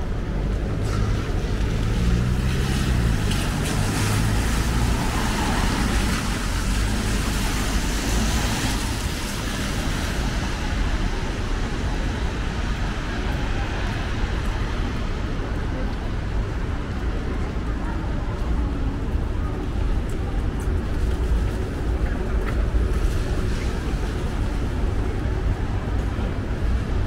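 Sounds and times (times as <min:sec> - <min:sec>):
low traffic rumble: 0:00.0 - 0:27.0
tyres hissing on wet road: 0:00.4 - 0:15.6.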